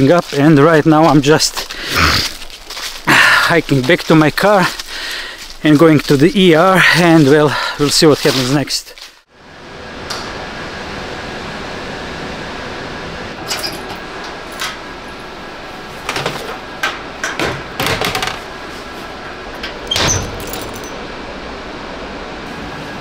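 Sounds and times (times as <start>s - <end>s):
keys jingling: 19.8s - 21.0s.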